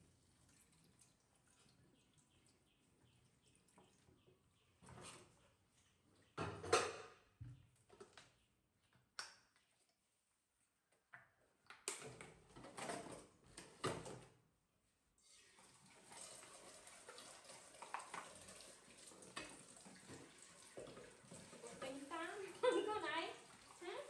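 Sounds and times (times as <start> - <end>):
dishes clattering in a sink: 6.4 - 7.4, 16.1 - 23.7
tap running into sink: 17.2 - 21.8.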